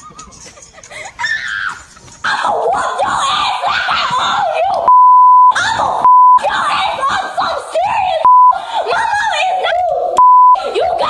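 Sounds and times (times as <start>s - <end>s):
girl shouting: 2.3s - 4.9s, 5.5s - 11.0s
censor bleep: 4.9s - 6.4s, 8.3s - 8.6s, 10.2s - 10.6s.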